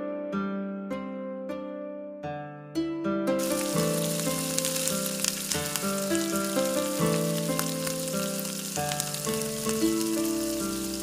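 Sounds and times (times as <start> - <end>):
gentle background music: 0.0 - 11.0
butter sizzling in frying pan: 3.4 - 11.0.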